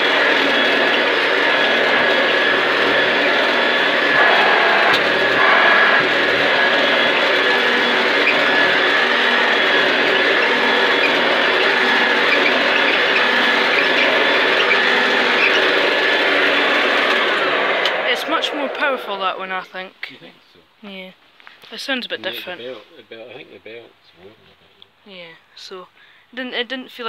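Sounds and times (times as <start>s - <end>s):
vacuum cleaner motor whining: 0.0s - 19.6s.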